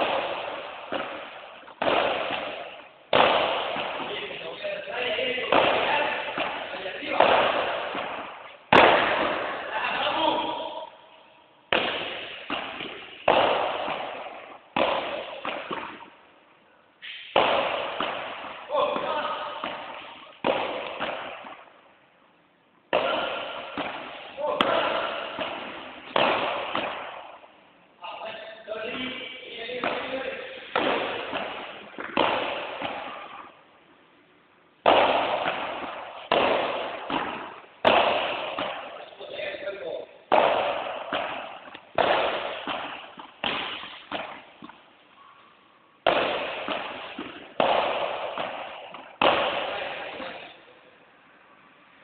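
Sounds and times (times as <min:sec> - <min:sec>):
racket hitting ball with echo: 0:00.0 - 0:16.3, 0:17.0 - 0:21.9, 0:22.9 - 0:33.7, 0:34.8 - 0:50.9.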